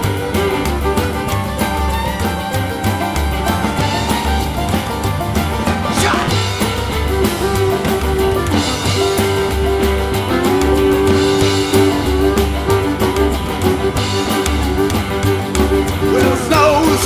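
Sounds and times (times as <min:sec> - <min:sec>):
bass: 0:00.0 - 0:17.0
drums: 0:00.0 - 0:17.0
guitar: 0:00.0 - 0:17.0.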